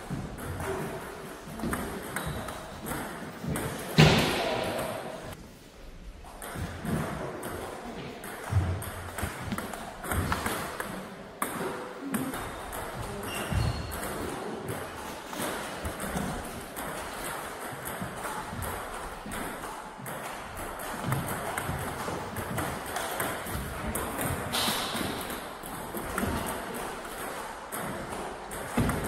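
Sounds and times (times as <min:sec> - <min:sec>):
ping pong ball hitting bats: 0:00.1 - 0:05.3, 0:06.2 - 0:29.0
ball bouncing on table: 0:06.4 - 0:14.8, 0:15.8 - 0:29.0.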